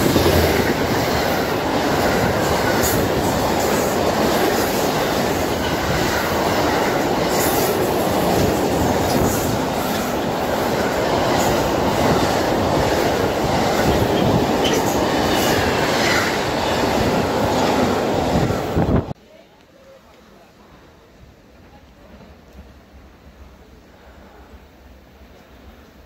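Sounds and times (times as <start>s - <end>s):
train wheels rumbling on rails: 0.0s - 19.2s.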